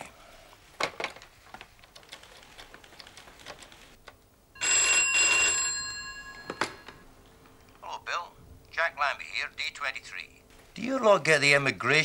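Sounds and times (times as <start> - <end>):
telephone bell ringing: 4.6 - 7.0.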